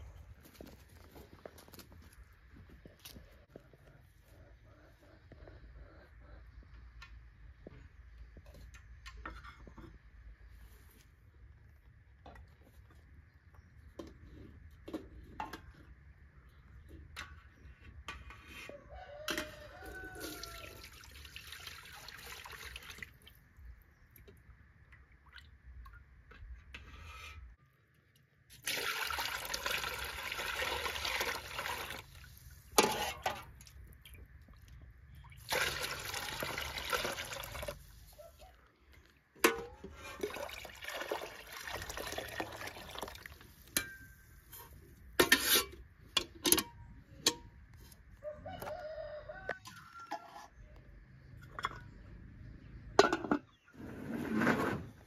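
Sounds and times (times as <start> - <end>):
liquid running and splashing: 35.3 - 37.9, 40.2 - 43.5.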